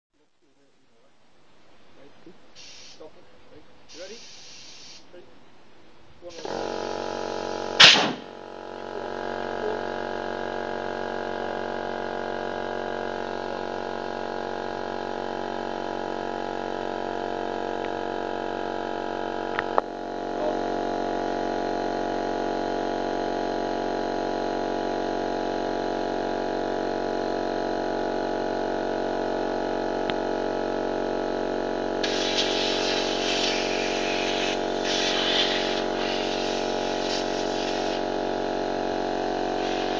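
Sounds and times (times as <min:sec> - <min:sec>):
air compressor humming: 0:02.6 - 0:03.1, 0:03.9 - 0:05.0, 0:06.3 - 0:39.9
air hissing through airline: 0:02.6 - 0:03.1, 0:03.9 - 0:05.1, 0:32.0 - 0:38.1, 0:39.4 - 0:39.9.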